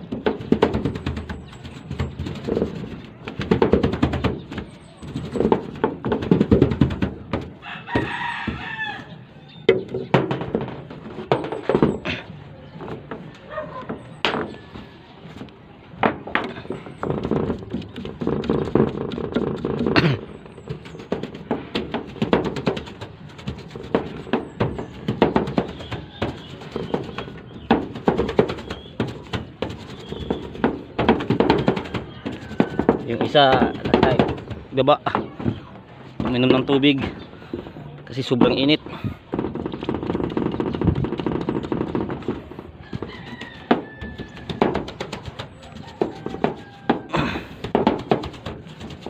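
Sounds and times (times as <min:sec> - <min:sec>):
paint roller scraping over metal: 0:00.1 - 0:08.6, 0:16.5 - 0:49.0
short knocks: 0:16.0 - 0:49.0.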